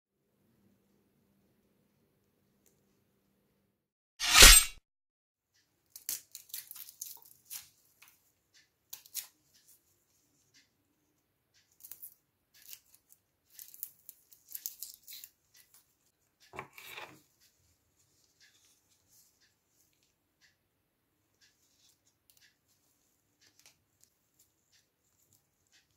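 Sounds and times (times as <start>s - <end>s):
onion skin crackling and tearing: 5.9s - 7.7s.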